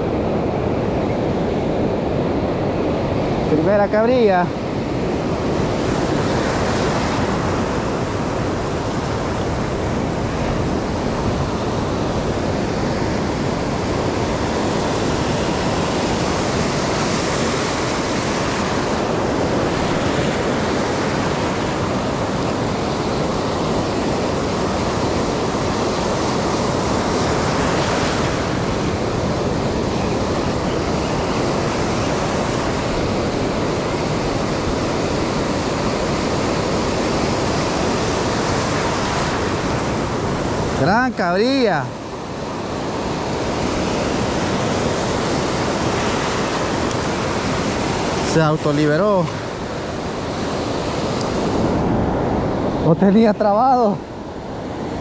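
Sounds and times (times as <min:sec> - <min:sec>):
waves breaking on rocky shore: 0:00.0 - 0:55.0.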